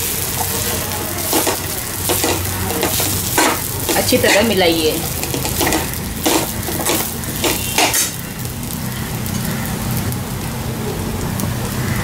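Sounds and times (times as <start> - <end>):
food sizzling in oil: 0.0 - 12.0
metal spoon scraping pan: 0.3 - 8.2.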